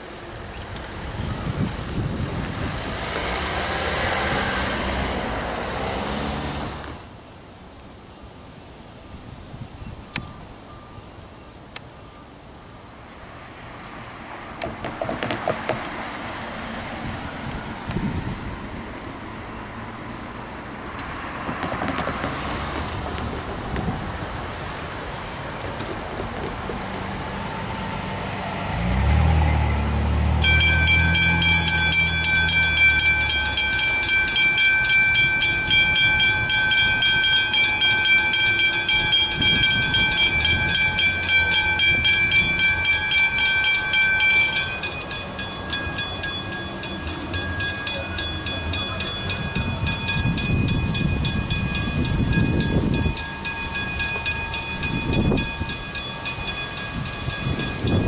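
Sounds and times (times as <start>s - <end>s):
level crossing bells ringing: 30.4s - 58.0s.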